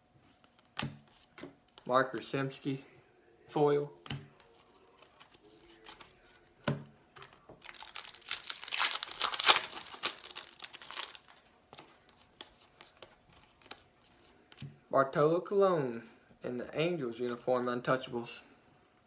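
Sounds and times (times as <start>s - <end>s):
cards clicking and rustling: 5.0s - 13.9s
wrapper tearing and crinkling: 7.6s - 11.4s.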